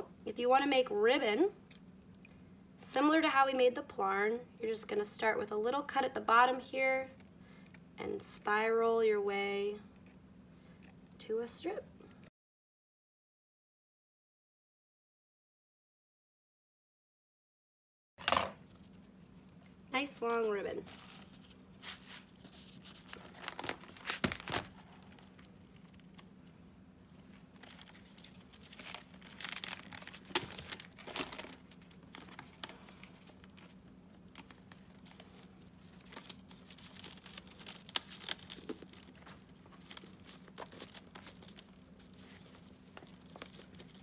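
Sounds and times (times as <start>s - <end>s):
paper and ribbon crinkling: 20.4s - 26.3s, 27.1s - 44.0s.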